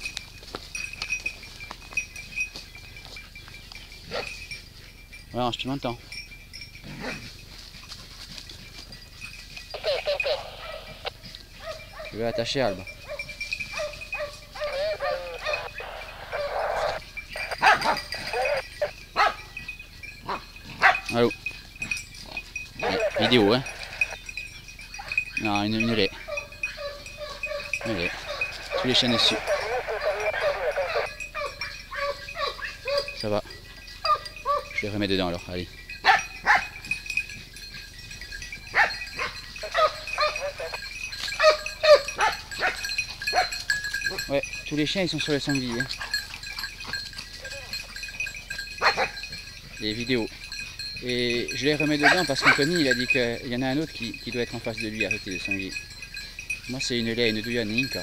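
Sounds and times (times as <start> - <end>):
dogs barking and yelping: 0.0 - 5.2, 6.0 - 35.0, 35.8 - 56.6
hounds baying: 0.0 - 58.0
rustle of brush: 7.1 - 9.6.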